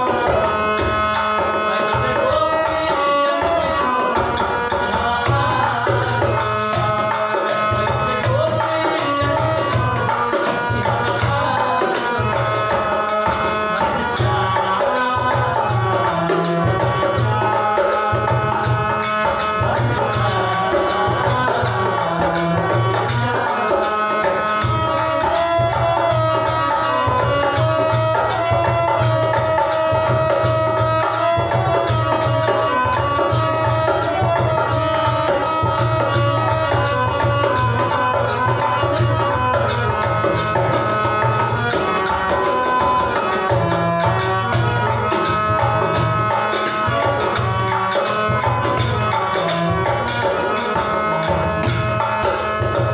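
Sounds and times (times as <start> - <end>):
hand drum rhythm: 0.0 - 52.9
harmonium: 0.0 - 52.9
men singing: 0.0 - 52.9.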